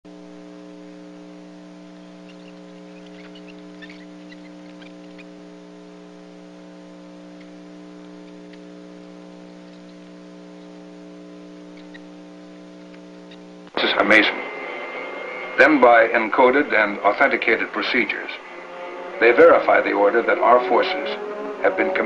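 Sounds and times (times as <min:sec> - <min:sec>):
electrical hum: 0:00.0 - 0:22.0
faint crackles: 0:00.2 - 0:14.0.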